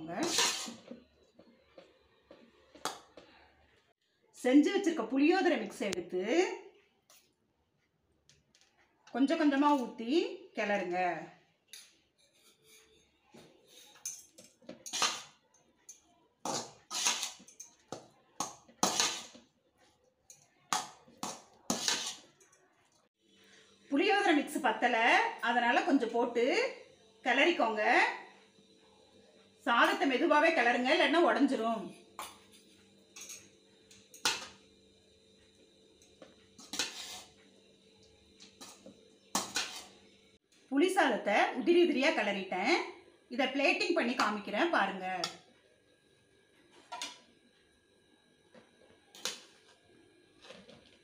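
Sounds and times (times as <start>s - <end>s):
ladle scraping rice in metal pot: 0.2s - 1.0s, 12.2s - 14.2s, 14.8s - 15.4s, 16.5s - 17.7s, 18.4s - 19.5s, 21.2s - 22.4s, 36.6s - 37.4s, 38.5s - 40.0s.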